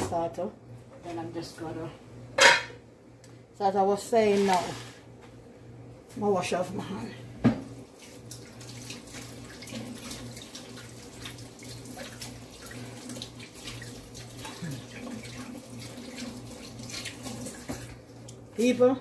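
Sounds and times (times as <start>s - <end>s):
low steady hum: 0.0s - 19.0s
tap running into a sink: 16.0s - 18.0s.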